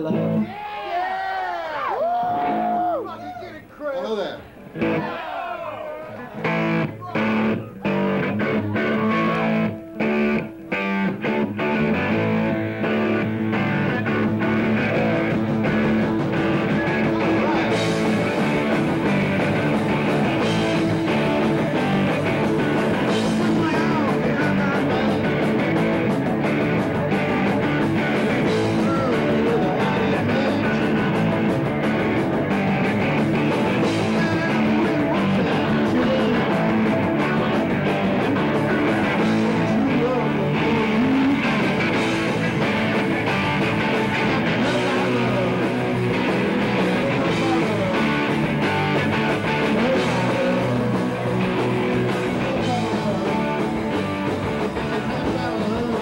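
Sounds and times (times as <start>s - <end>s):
bass guitar: 0.0s - 0.7s, 1.3s - 3.1s, 4.6s - 5.2s, 6.1s - 56.0s
electric guitars: 0.0s - 0.7s, 1.9s - 3.1s, 4.6s - 5.1s, 6.1s - 56.0s
drums: 0.0s - 56.0s
man singing: 16.4s - 19.0s, 22.9s - 25.7s, 27.4s - 31.5s, 33.7s - 42.5s, 44.3s - 56.0s.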